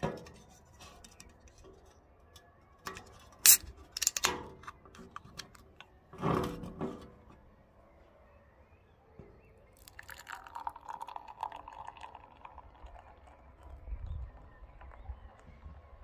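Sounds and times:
beer foam fizzing: 9.8 - 13.6
beer pouring into a glass: 9.8 - 15.0.

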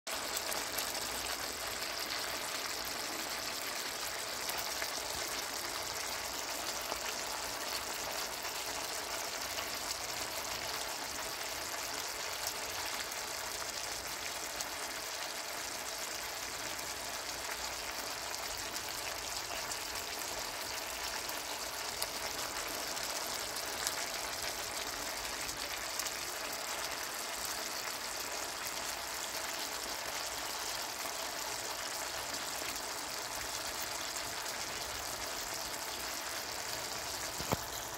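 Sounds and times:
stew bubbling and sizzling: 0.0 - 37.9.

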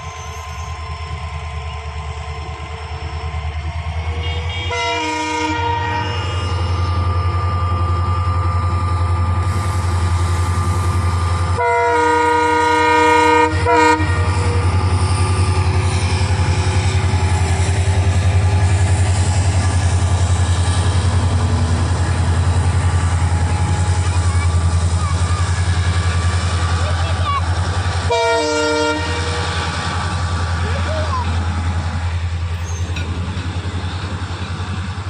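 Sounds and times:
diesel locomotive engine rumble: 0.0 - 35.0
train horn: 4.1 - 7.1, 11.5 - 14.8, 28.1 - 29.8.

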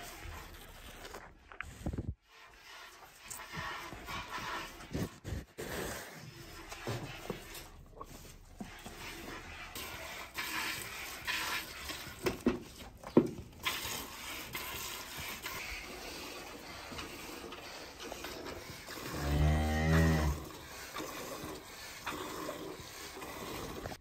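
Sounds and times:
cow mooing: 19.1 - 20.5.

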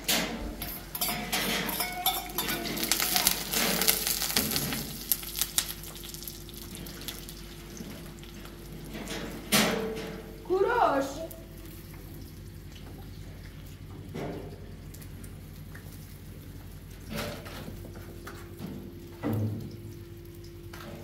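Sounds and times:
eggs sizzling in pan: 0.6 - 9.5.

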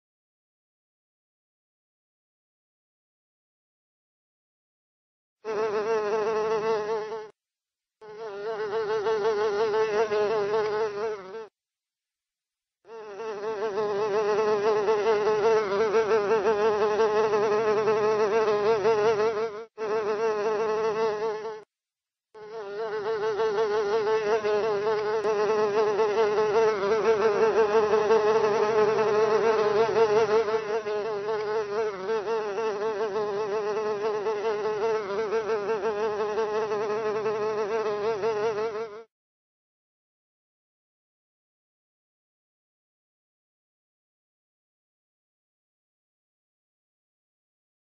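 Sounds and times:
fly buzzing: 5.4 - 7.4, 8.0 - 11.6, 12.8 - 21.7, 22.3 - 39.1.

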